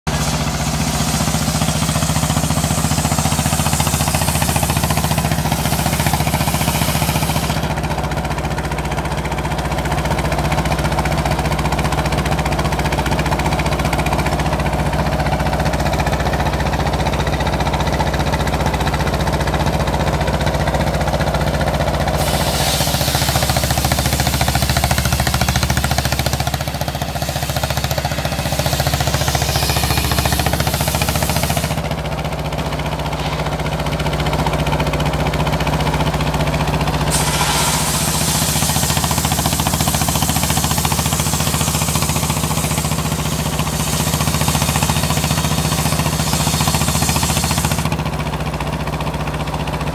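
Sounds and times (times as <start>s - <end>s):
sawmill engine running: 0.0s - 49.9s
saw blade cutting log: 0.1s - 7.9s, 22.1s - 32.0s, 32.6s - 34.0s, 37.1s - 48.0s.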